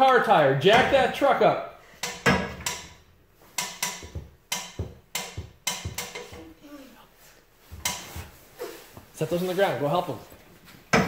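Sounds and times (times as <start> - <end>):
floor jack handle clunking: 2.0 - 6.5.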